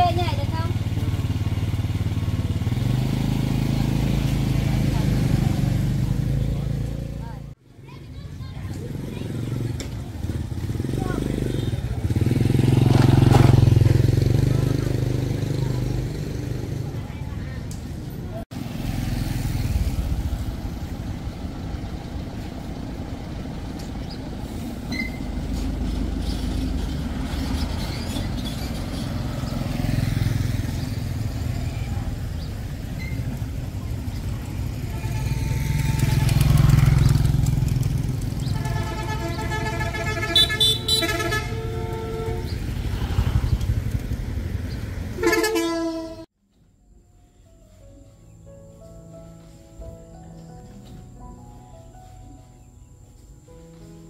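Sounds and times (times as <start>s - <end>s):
road traffic: 0.0s - 54.0s
car horn honking: 34.7s - 36.6s, 38.4s - 42.8s, 45.2s - 46.3s.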